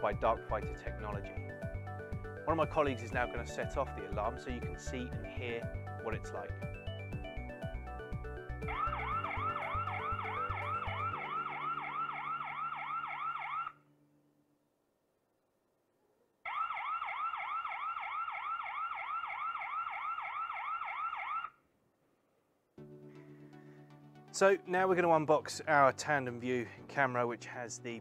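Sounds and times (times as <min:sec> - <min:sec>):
electronic alarm siren wailing: 0:08.5 - 0:13.9, 0:16.5 - 0:21.6.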